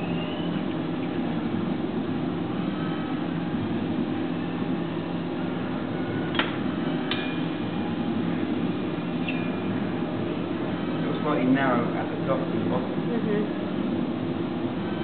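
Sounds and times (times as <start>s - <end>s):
potter's wheel humming: 0.0s - 15.0s.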